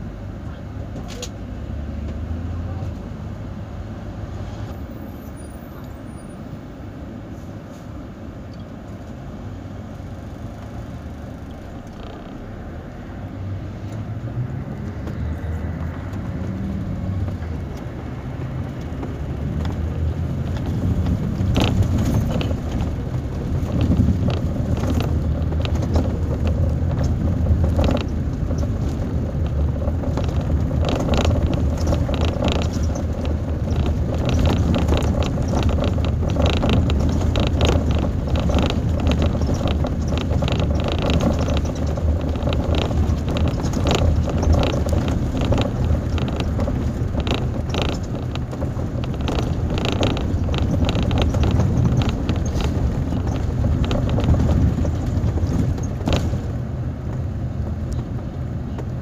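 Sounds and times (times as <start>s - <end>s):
bus engine drone: 0.0s - 59.0s
road noise: 0.0s - 59.0s
rattles and clicks: 10.2s - 12.5s, 14.8s - 59.0s.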